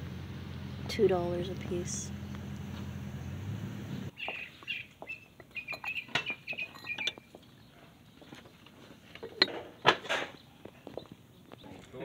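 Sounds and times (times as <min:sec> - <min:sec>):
small bird chirping: 0:03.8 - 0:08.5.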